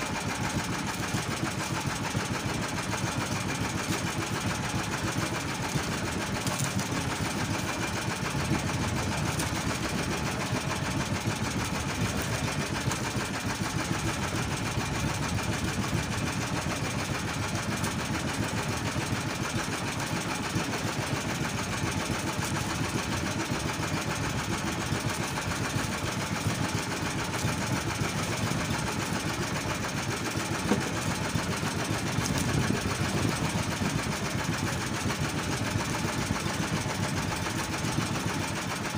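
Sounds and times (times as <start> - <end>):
small boat engine running: 0.0 - 38.9.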